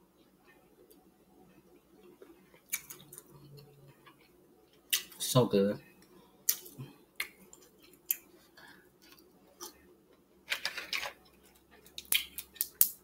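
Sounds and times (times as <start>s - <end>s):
person chewing wetly: 2.0s - 5.1s, 6.5s - 10.2s
wet mouth clicks and smacks: 2.7s - 3.2s, 6.5s - 8.3s.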